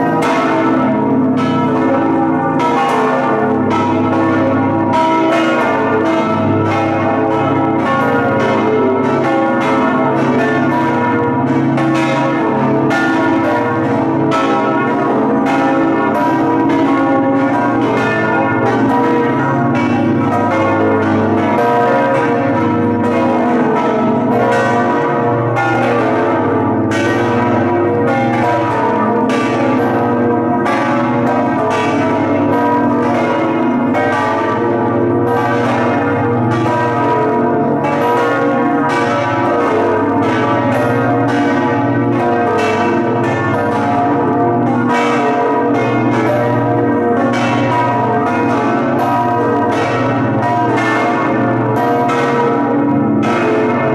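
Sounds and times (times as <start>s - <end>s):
church bells ringing: 0.0s - 53.9s.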